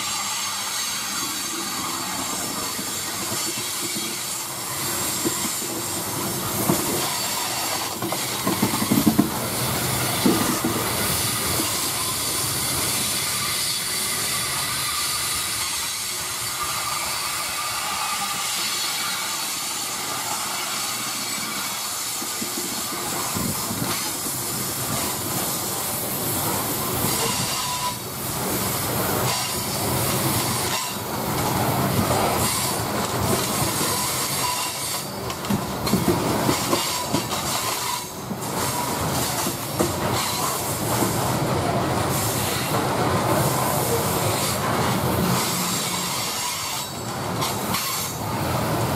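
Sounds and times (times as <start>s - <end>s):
steel wheels rumbling on rails: 0.0s - 48.9s
train car clanks: 2.5s - 13.1s, 21.8s - 48.9s.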